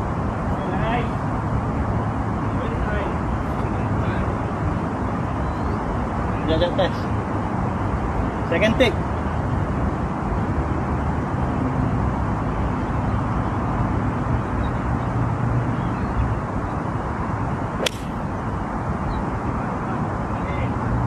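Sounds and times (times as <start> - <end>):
golf club striking ball: 17.8 - 18.5.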